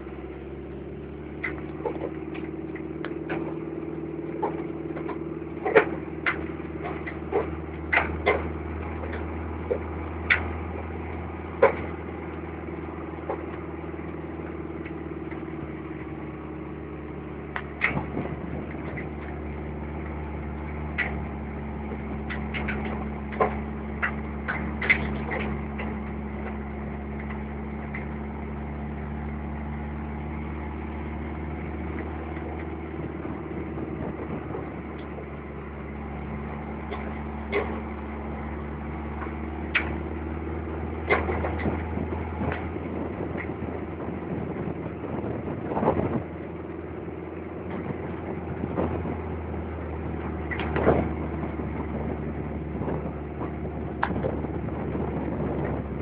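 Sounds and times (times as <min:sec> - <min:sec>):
vehicle engine running: 0:00.0 - 0:56.0
sharp clicks and knocks: 0:01.2 - 0:15.5, 0:17.5 - 0:28.2, 0:35.9 - 0:40.3, 0:40.9 - 0:43.6, 0:50.3 - 0:51.6, 0:52.9 - 0:54.5.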